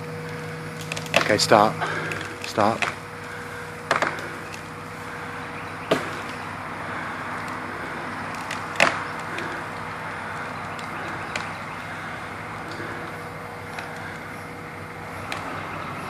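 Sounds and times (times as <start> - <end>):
machine engine running: 0.0 - 16.0
sharp knocks: 5.9 - 6.3.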